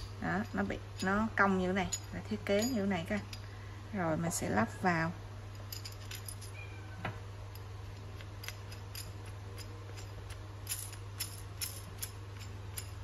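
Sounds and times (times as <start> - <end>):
metal bars clicking and tapping: 0.0 - 3.4.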